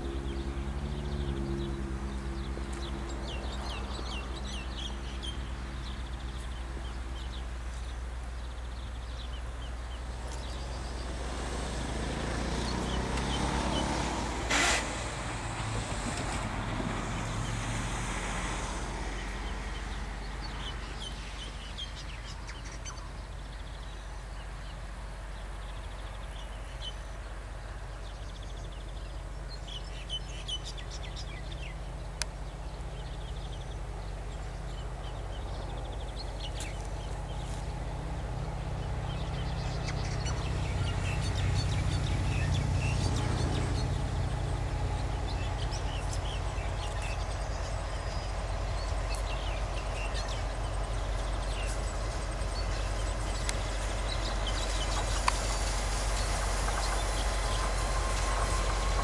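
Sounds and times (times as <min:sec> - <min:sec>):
small birds chirping: 0:00.0 - 0:14.6, 0:17.1 - 0:59.0
locomotive engine rumbling: 0:00.0 - 0:26.5, 0:27.2 - 0:59.0.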